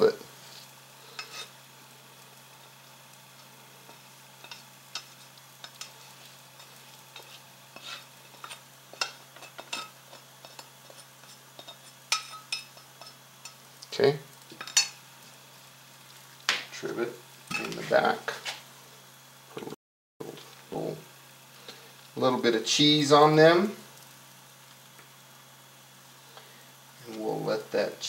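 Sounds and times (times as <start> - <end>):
spatula scraping a metal pan: 0.4 - 1.6, 3.9 - 13.6.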